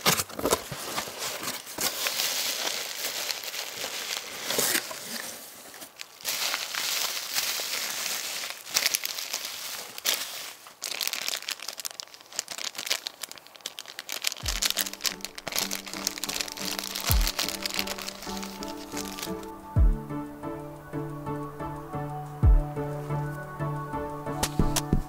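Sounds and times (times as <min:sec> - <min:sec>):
plastic bag crinkling: 0:00.0 - 0:19.6
bubble wrap crinkling: 0:00.0 - 0:20.2
music with deep bass: 0:19.5 - 0:25.0.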